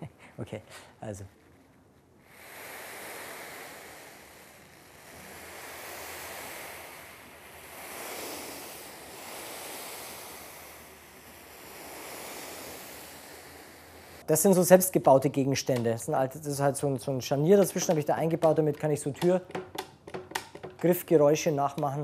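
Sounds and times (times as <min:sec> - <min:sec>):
brushes sweeping over a cushion: 0:01.5 - 0:14.2.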